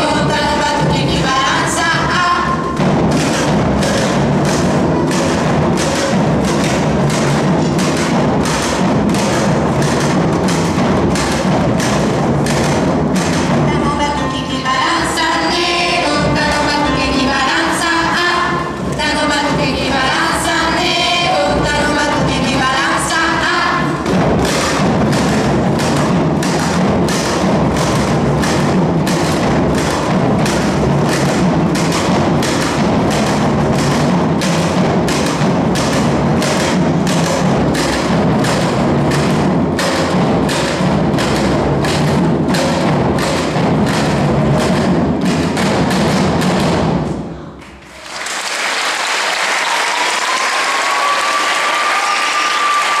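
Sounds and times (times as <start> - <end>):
djembe drums playing: 0.0 - 47.6, 49.6 - 53.0
audience applauding: 47.6 - 53.0.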